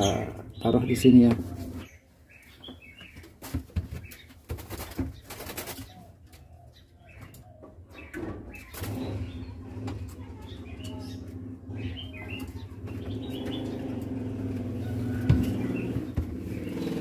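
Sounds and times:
bird chirping: 0.0s - 17.0s
bird wings fluttering: 3.4s - 5.9s.

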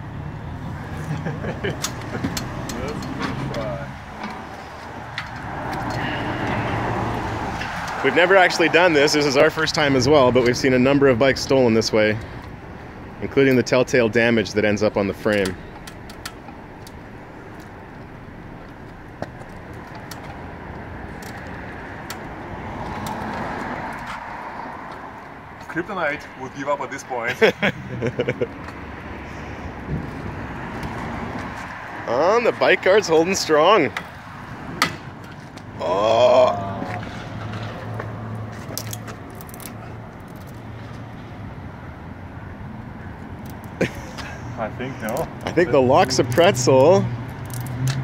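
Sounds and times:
car passing: 0.0s - 48.0s
street traffic hum: 0.0s - 48.0s
bicycle metallic clicks and rattles: 1.1s - 6.6s, 15.2s - 20.4s, 21.1s - 24.2s, 38.5s - 41.2s, 43.2s - 44.4s, 45.0s - 48.0s
bicycle frame clicking against lock: 47.3s - 48.0s.

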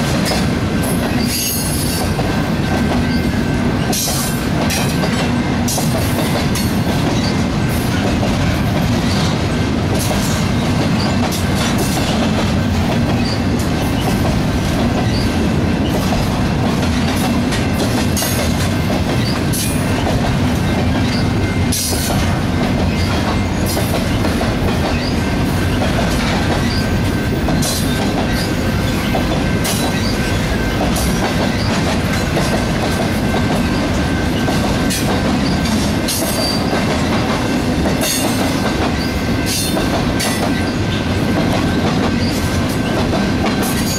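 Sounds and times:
clacks over rail joints: 0.0s - 43.9s
train wheels rumbling on rail: 0.0s - 43.9s.

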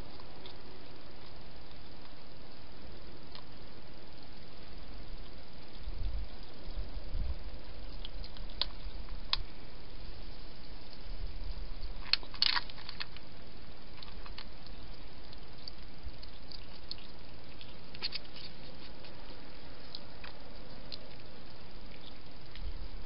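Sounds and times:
steady hiss: 0.0s - 23.0s.

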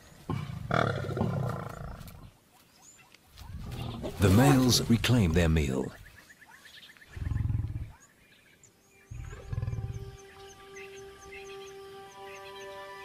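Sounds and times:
lion growling: 0.3s - 2.2s, 7.1s - 8.1s, 9.1s - 10.2s
soft music with held notes: 8.7s - 13.0s.

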